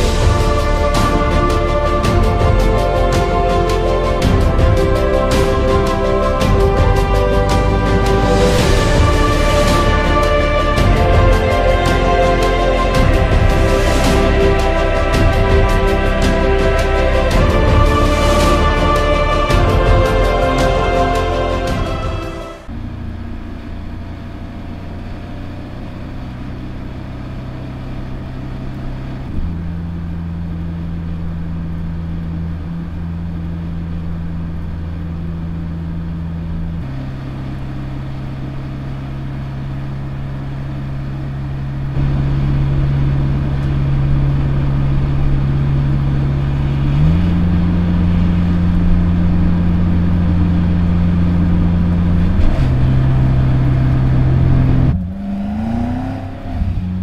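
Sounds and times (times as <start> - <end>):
car engine drone driving by: 0.0 - 57.0.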